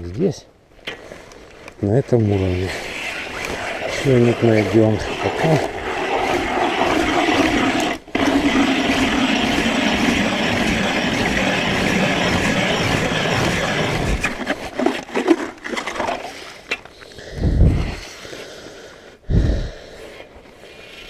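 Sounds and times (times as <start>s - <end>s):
ice auger grinding scrape: 2.2s - 16.6s.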